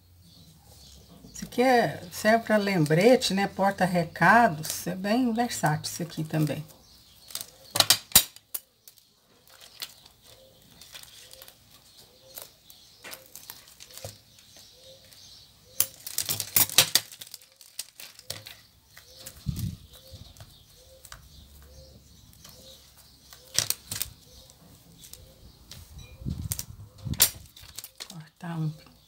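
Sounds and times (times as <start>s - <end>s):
plastic crinkling: 6.4s - 28.4s.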